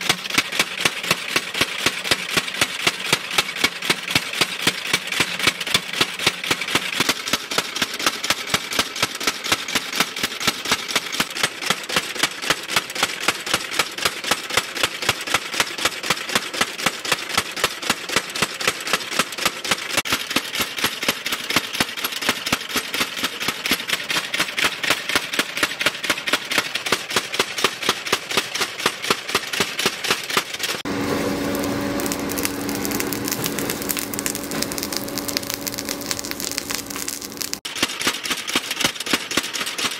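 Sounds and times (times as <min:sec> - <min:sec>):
power hammer pounding metal: 0:00.0 - 0:39.5
forge fire hum: 0:30.6 - 0:37.7
forge coals crackling: 0:30.9 - 0:37.7.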